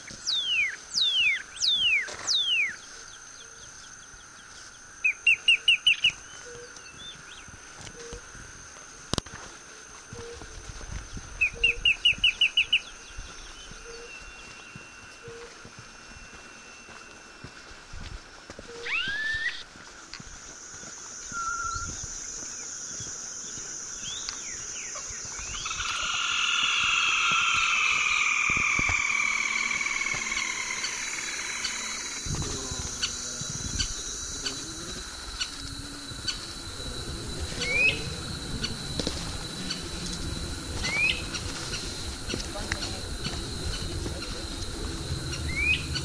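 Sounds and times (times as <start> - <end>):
steady high hiss: 0.0 - 46.0
bird chirps rising in pitch: 0.2 - 2.8, 18.8 - 19.6, 45.3 - 46.0
low rumble: 27.0 - 46.0.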